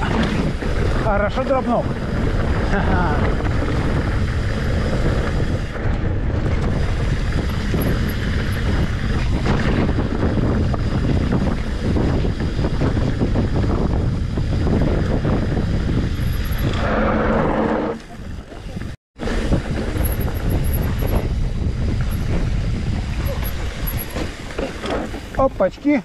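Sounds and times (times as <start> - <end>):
bike rattles and knocks: 0.0 - 16.8, 18.0 - 26.0
mountain bike rolling over rocks: 0.0 - 17.2
wind rumbling on microphone: 0.0 - 26.0.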